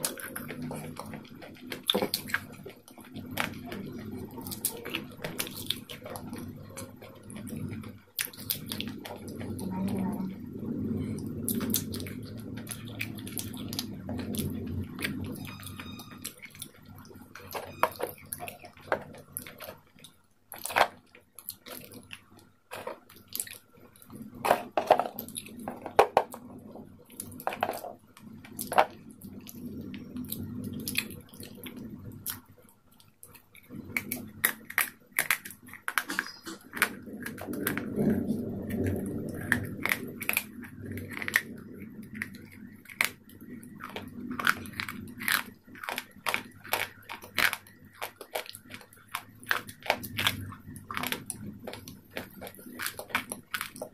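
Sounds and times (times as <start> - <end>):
crunchy chewing: 0.0 - 9.9, 10.5 - 53.9.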